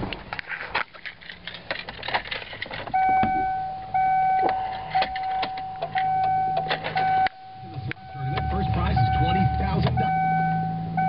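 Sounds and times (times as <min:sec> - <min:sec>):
car warning chime: 0:02.9 - 0:11.0
keys jingling: 0:04.6 - 0:07.2.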